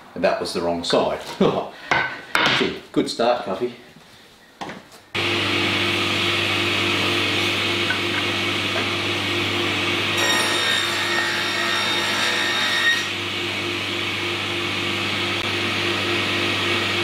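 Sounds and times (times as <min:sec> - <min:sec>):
table saw hum: 0:05.2 - 0:17.0
saw blade cutting wood ringing: 0:10.2 - 0:13.1.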